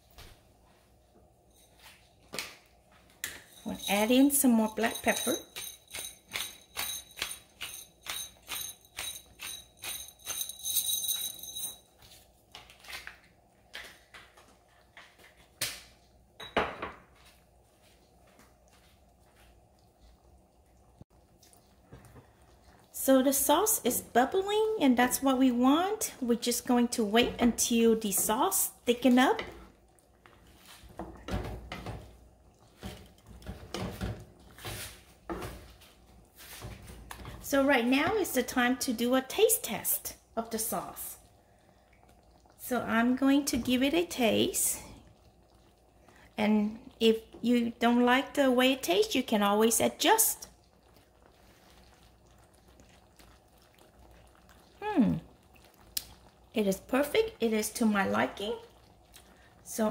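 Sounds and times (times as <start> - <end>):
thick sauce bubbling: 17.0 - 39.1, 39.8 - 59.9.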